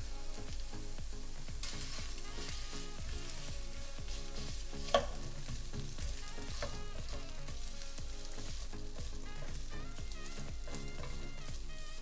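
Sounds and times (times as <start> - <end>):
rice and shrimp sizzling in a pan: 0.0 - 12.0
spatulas stirring in a pan: 0.0 - 12.0
utensil clacking on pan: 3.3 - 7.8, 10.7 - 11.3.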